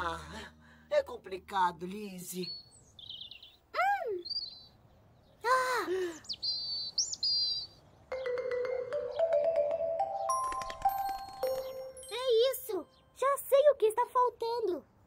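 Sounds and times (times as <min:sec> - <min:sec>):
cartoon bird chirping: 0:02.5 - 0:04.8, 0:06.2 - 0:09.4
gentle xylophone-like music: 0:08.1 - 0:13.1.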